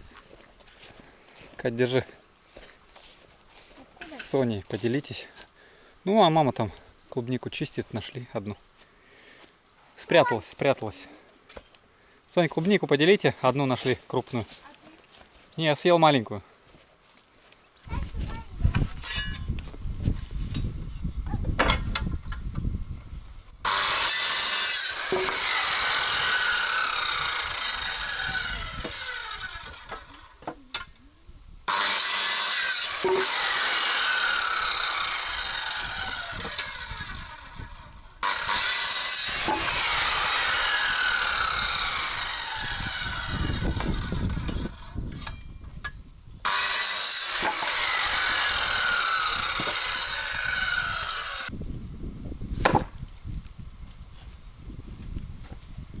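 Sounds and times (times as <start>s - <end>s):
power saw cutting timber: 23.6s - 30.5s, 31.7s - 45.4s, 46.4s - 51.5s.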